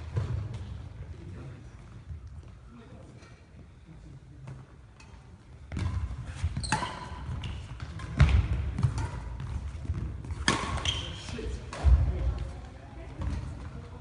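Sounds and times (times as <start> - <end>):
racket striking shuttlecock: 10.3 - 10.9.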